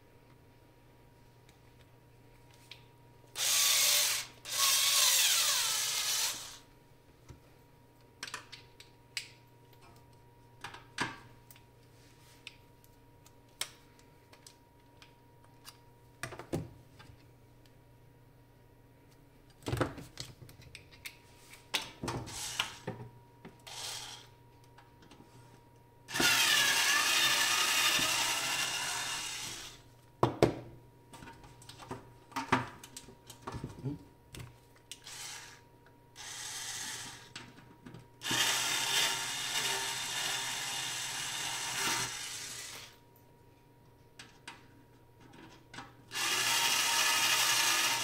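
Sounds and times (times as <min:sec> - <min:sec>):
power screwdriver running: 0:03.4 - 0:06.6, 0:23.7 - 0:24.2, 0:26.1 - 0:29.8, 0:35.0 - 0:35.6, 0:36.2 - 0:37.3, 0:38.2 - 0:43.0, 0:46.1 - 0:48.0.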